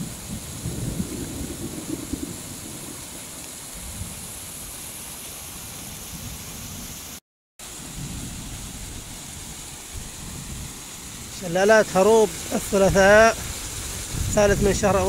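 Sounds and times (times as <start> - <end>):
water rushing down rocky channel: 8.4 - 15.0.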